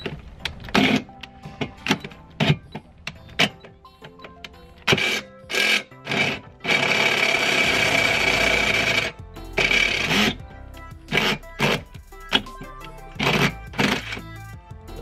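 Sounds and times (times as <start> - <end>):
background music: 0.0 - 15.0
power drill boring through metal: 4.9 - 10.4.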